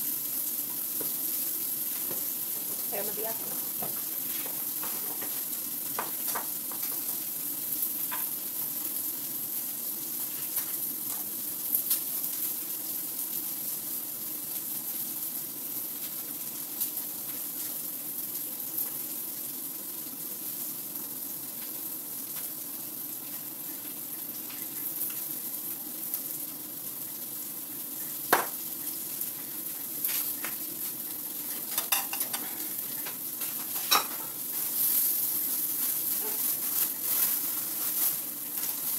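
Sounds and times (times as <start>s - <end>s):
food sizzling in a frying pan: 0.0s - 38.9s
dishes and utensils clinking: 31.7s - 32.6s, 33.7s - 34.3s.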